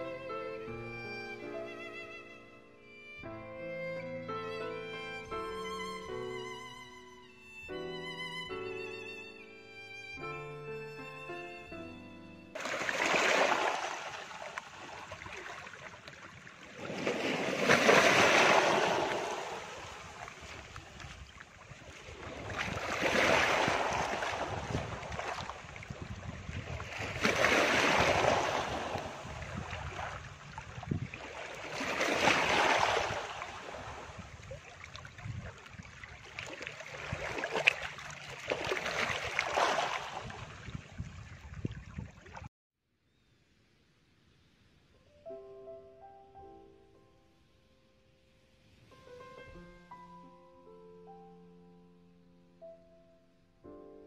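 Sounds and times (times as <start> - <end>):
ocean waves breaking: 12.6 - 40.9.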